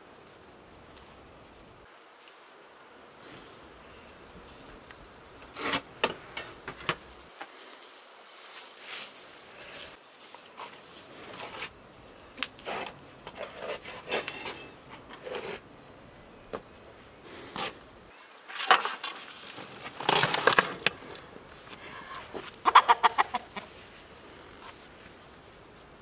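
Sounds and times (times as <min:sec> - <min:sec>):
clicks knocks and rustles of handling: 0:18.5 - 0:22.6.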